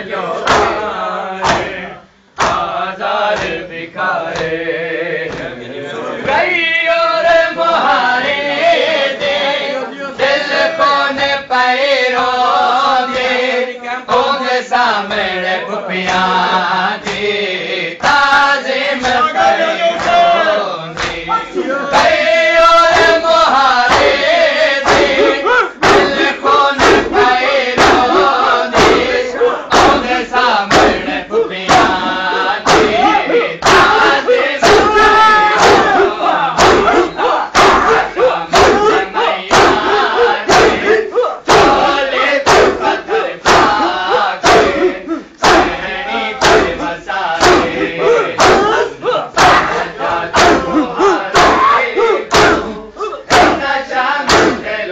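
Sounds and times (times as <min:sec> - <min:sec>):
men chanting in unison: 0:00.0 - 0:54.9
hands slapping chests: 0:21.0 - 0:22.2, 0:24.8 - 0:26.2, 0:26.8 - 0:28.1, 0:28.7 - 0:29.1, 0:30.7 - 0:31.0, 0:32.6 - 0:35.0, 0:36.6 - 0:39.9, 0:43.4 - 0:44.8, 0:46.4 - 0:46.8, 0:47.4 - 0:47.8, 0:49.4 - 0:50.7, 0:52.3 - 0:52.7, 0:53.3 - 0:53.7, 0:54.3 - 0:54.6.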